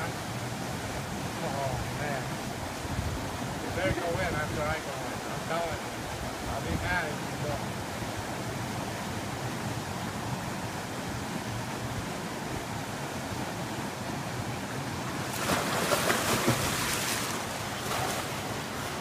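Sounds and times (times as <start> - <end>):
brook water running: 0.0 - 19.0
person splashing in water: 15.2 - 18.4.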